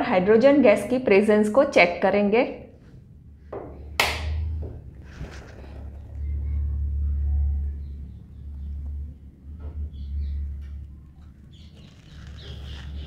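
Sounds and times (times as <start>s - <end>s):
low rumble: 2.8s - 11.8s.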